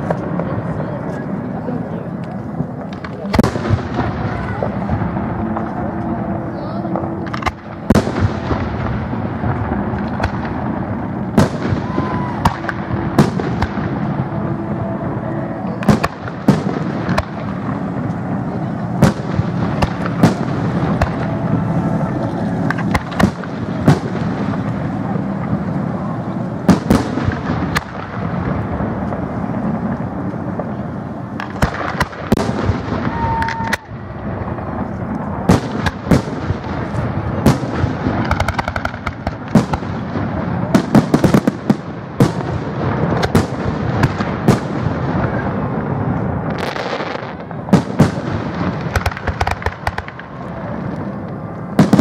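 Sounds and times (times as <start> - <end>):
steady background din: 0.0 - 52.0
firework shells bursting: 15.8 - 25.4, 35.4 - 40.1, 46.5 - 50.3.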